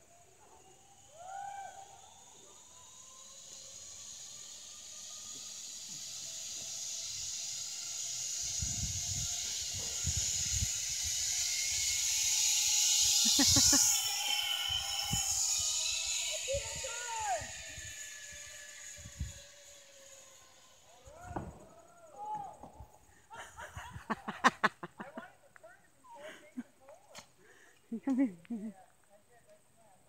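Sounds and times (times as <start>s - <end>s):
zip-line trolley whining on cable: 0.0s - 25.3s.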